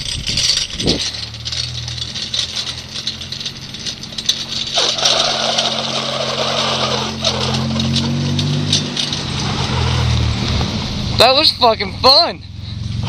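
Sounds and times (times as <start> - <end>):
wind noise: 0.0 - 5.1
wheels rolling on asphalt: 0.0 - 13.0.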